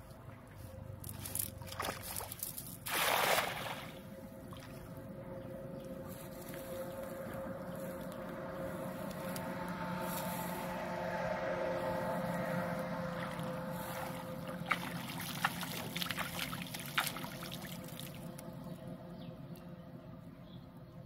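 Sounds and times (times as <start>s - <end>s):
steady droning tone: 0.0s - 2.8s, 3.4s - 21.0s
net splashing into pond: 1.0s - 4.8s, 13.1s - 18.3s.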